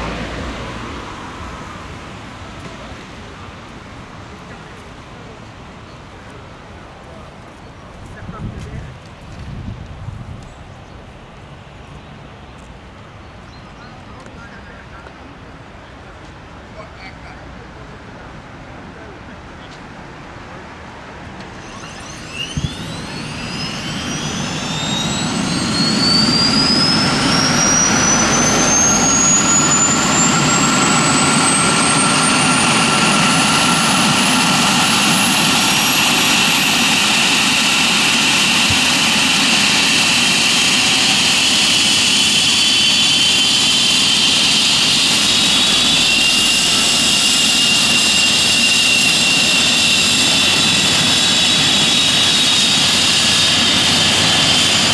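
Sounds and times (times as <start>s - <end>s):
helicopter turbine whine: 21.3s - 54.9s.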